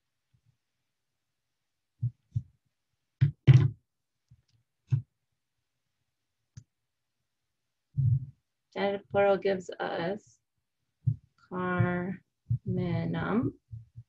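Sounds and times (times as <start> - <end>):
marker pens knocking on board: 3.2 - 3.8.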